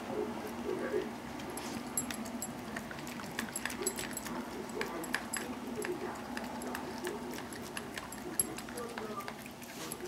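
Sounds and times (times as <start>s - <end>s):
puppy eating from bowl: 0.1s - 10.0s
light metallic jingle: 1.6s - 2.7s.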